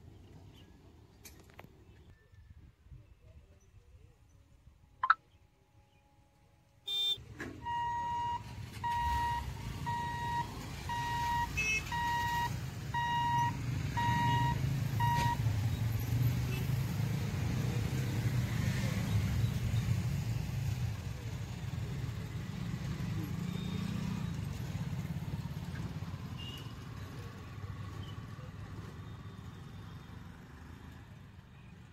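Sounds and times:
crossing warning beeper: 6.9s - 15.5s
motorcycle engines pulling away: 8.1s - 30.8s.

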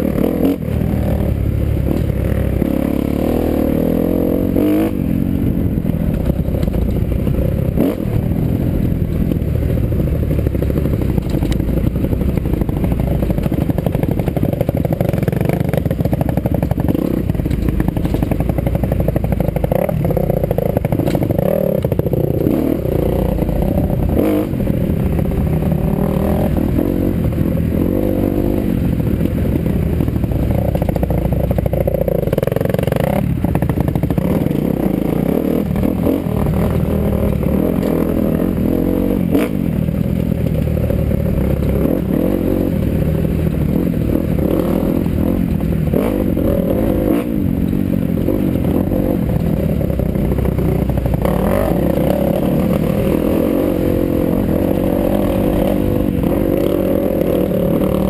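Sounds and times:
dirt bike engine revving: 0.0s - 9.0s, 9.8s - 39.9s, 40.6s - 58.0s
bike knocking and rattling: 5.7s - 8.0s, 9.0s - 24.4s, 28.9s - 38.0s.

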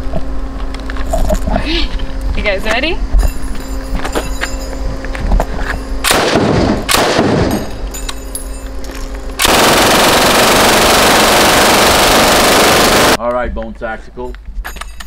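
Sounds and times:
machine gun firing bursts: 6.1s - 7.5s, 9.4s - 13.2s.

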